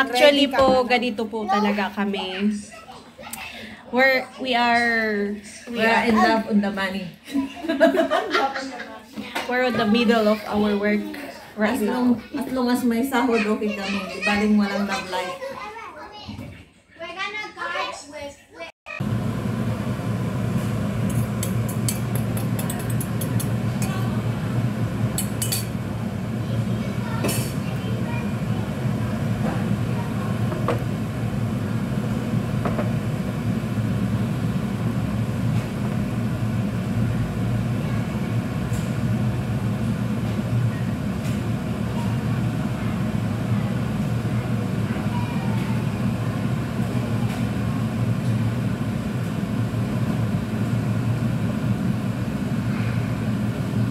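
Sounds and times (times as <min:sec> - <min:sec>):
steady low hum: 0:19.0 - 0:53.9
utensil clinking on frying pan: 0:25.2 - 0:25.8.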